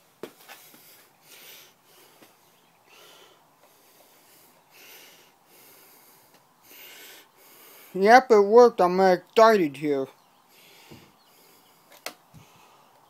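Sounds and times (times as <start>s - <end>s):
person breathing softly: 0.6s - 8.0s, 10.5s - 13.0s.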